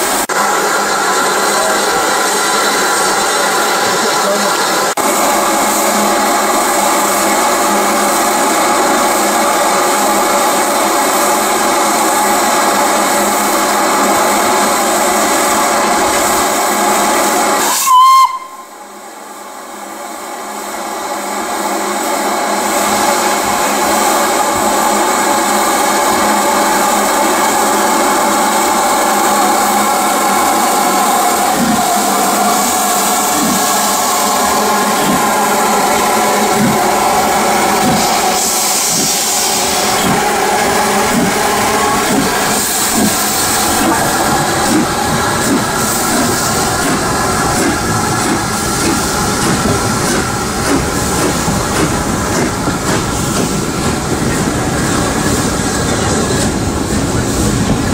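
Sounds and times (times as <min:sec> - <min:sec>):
steam locomotive hissing: 0:00.0 - 0:57.9
steam whistle toot: 0:17.6 - 0:18.8.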